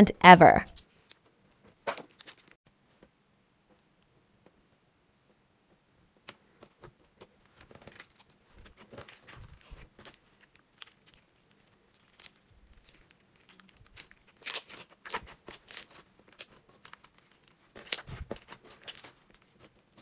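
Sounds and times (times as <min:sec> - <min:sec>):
sticky slime crackles: 0:06.7 - 0:20.0.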